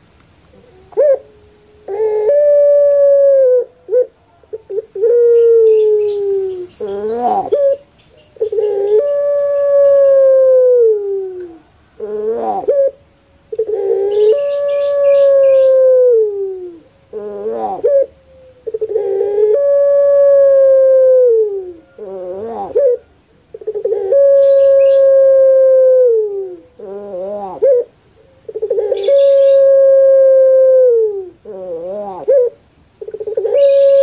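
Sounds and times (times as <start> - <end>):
dove cooing: 0.5 - 34.0
rolling gurgling dove notes: 0.7 - 34.0.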